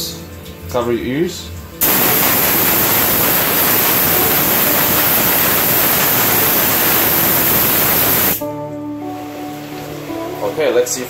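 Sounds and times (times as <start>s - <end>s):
compressed air blow gun hissing: 1.8s - 8.4s.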